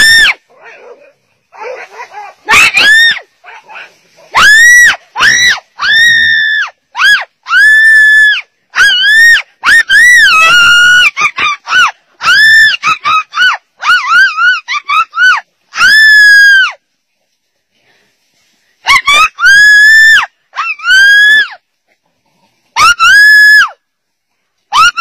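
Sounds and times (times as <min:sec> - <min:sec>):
dog yelping in distress: 0:01.6 - 0:03.2, 0:08.8 - 0:16.6.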